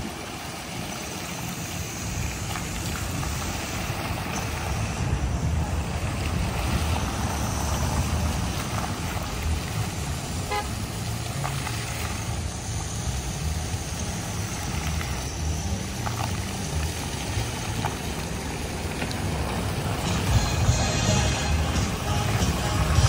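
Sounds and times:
fountain jets splashing into pool: 0.0s - 23.0s
road traffic: 0.0s - 23.0s
horn toot: 10.4s - 10.8s, 20.1s - 23.0s.

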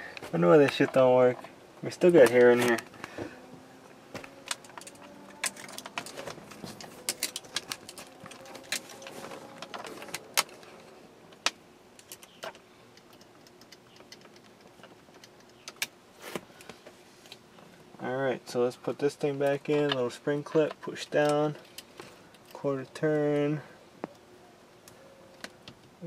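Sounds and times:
clicks and rattles of handled parts: 0.2s - 3.3s, 4.0s - 15.9s, 19.3s - 24.2s.

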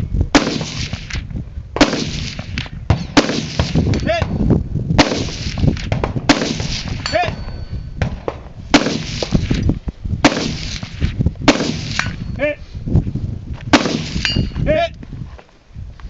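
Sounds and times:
gunshots: 0.3s - 1.2s, 1.8s - 4.4s, 5.0s - 9.6s, 10.2s - 12.2s, 13.7s - 14.4s
steel target metallic ping: 7.0s - 8.0s, 14.0s - 14.6s.

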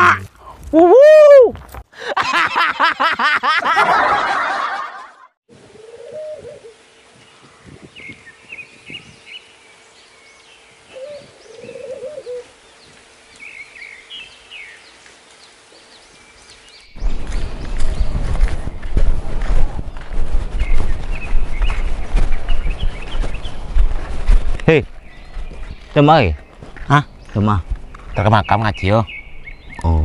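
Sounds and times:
dove cooing: 5.7s - 6.8s, 10.9s - 12.6s
small birds chirping: 6.8s - 30.0s.

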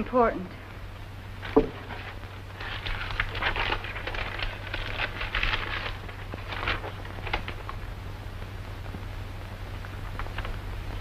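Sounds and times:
paper rustling and crinkling: 1.4s - 7.9s, 10.0s - 10.6s.

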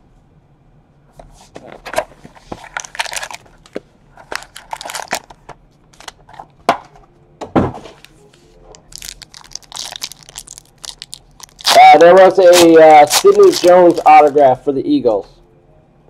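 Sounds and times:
card packs crinkling: 2.4s - 6.2s, 8.8s - 14.6s.

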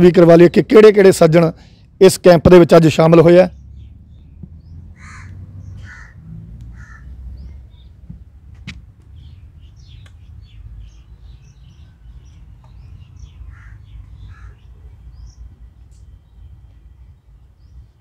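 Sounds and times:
small birds chirping: 3.3s - 18.0s
crow cawing: 5.0s - 7.2s, 13.5s - 14.7s.

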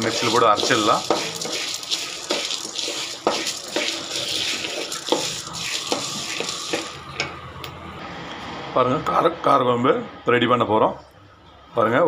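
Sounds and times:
spatula scraping a pan: 0.0s - 7.0s
oil sizzling: 0.0s - 7.4s.

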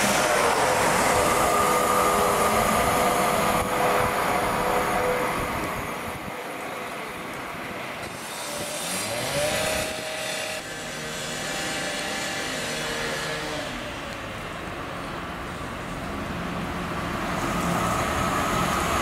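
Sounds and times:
rising whine: 0.0s - 14.6s
train passing: 0.0s - 19.0s.

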